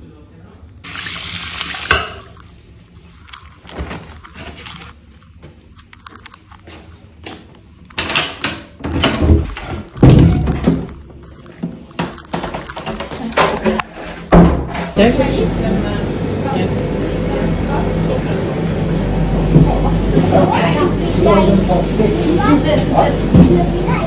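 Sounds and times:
heavy door thunks: 0:08.8 - 0:10.9, 0:14.3 - 0:14.9.

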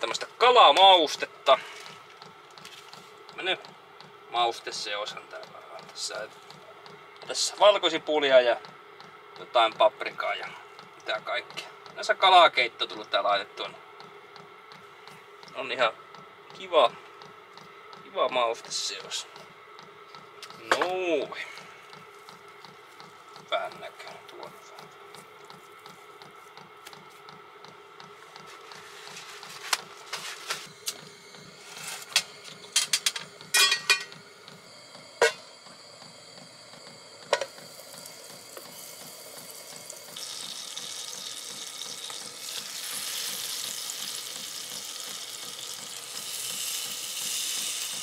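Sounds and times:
pan and utensils clinking: 0:32.8 - 0:34.1
fish sizzling in a frying pan: 0:40.1 - 0:47.9.

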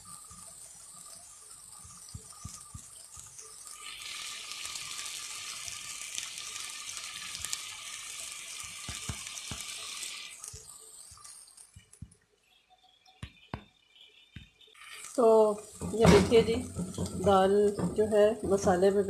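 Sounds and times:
lentils sizzling in oil: 0:00.0 - 0:19.0.

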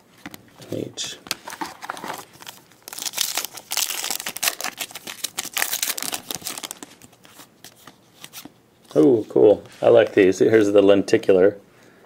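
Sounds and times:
foil wrapper crinkling and tearing: 0:01.8 - 0:07.1.

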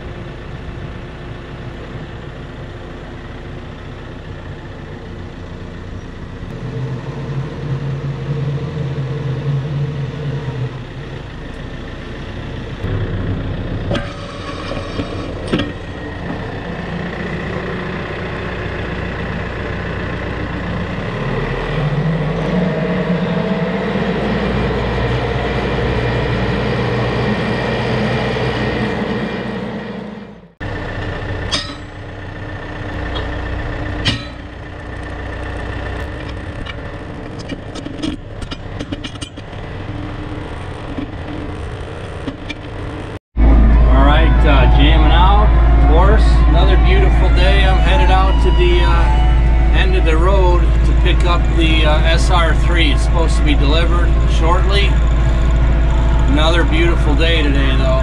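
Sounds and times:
tractor engine running: 0:00.0 - 0:58.0
metal clunks: 0:13.8 - 0:16.5, 0:31.5 - 0:32.0, 0:34.0 - 0:34.5.

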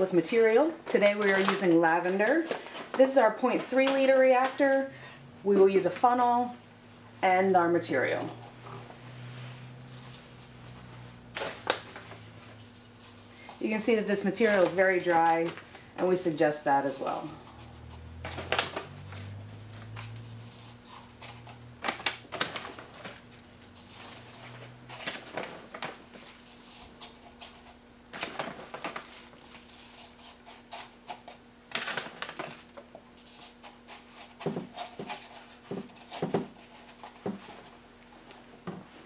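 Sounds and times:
faint steady hum: 0:00.0 - 0:39.0
dry buds rustling through funnel: 0:08.4 - 0:16.1, 0:16.8 - 0:39.0.

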